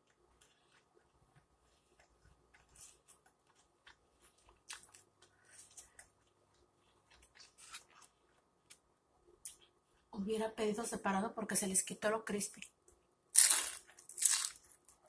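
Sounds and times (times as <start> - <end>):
person chewing: 0.0 - 8.8, 13.3 - 15.0.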